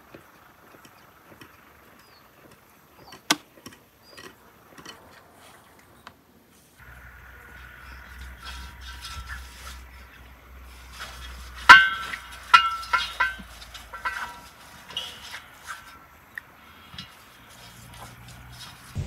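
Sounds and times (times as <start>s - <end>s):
kitchenware clinking: 10.9s - 16.0s.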